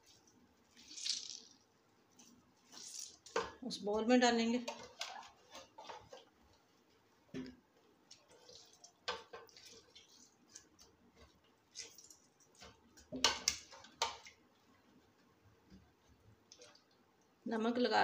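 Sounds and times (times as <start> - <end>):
wet squelches of squeezed potato: 0.0 - 3.4, 8.0 - 14.5.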